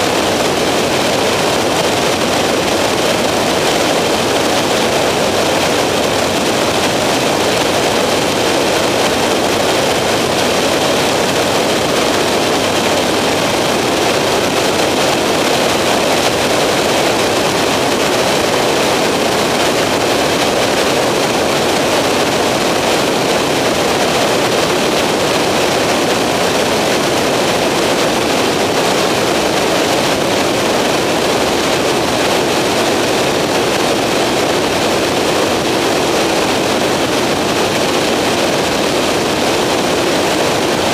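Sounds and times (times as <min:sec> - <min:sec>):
aircraft engine and propeller drone: 0:00.0 - 0:40.9.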